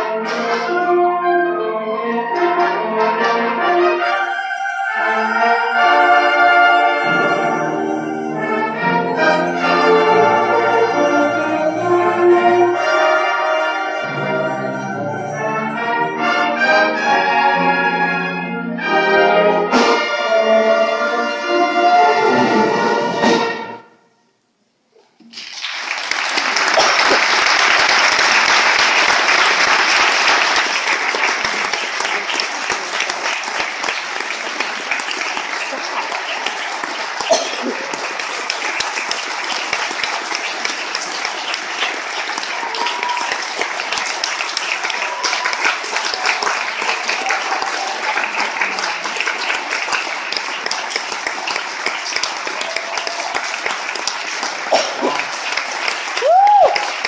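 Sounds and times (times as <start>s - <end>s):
audience applauding: 4.0s - 15.6s, 25.2s - 57.0s.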